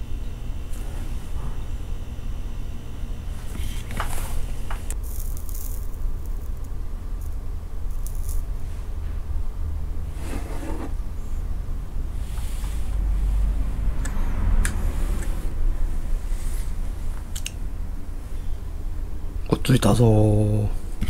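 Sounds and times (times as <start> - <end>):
rustles and clicks of handling wires: 3.4 - 9.2
low background rumble: 10.9 - 21.0.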